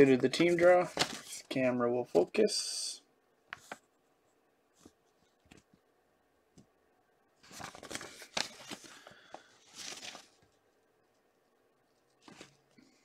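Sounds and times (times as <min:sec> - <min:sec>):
paper rustling and crinkling: 0:00.1 - 0:01.5, 0:07.4 - 0:10.6, 0:11.9 - 0:12.8.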